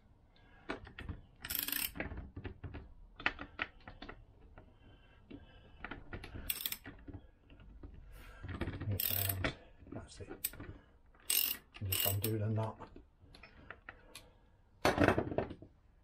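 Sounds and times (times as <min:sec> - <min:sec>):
ratchet wrench clicking: 0:01.4 - 0:02.0, 0:06.5 - 0:06.8, 0:09.0 - 0:09.4, 0:11.2 - 0:12.4.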